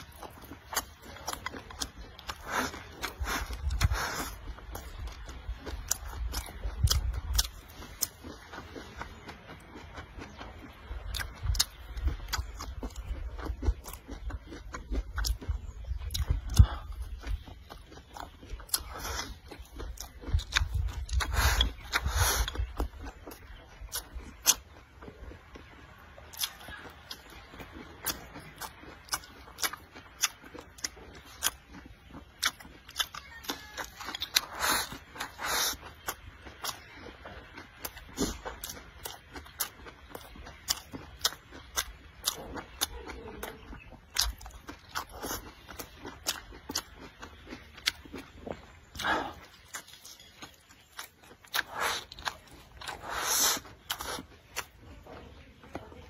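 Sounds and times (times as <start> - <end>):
chewing food: 0.0 - 56.0
rice shovelled into mouth: 53.0 - 53.7.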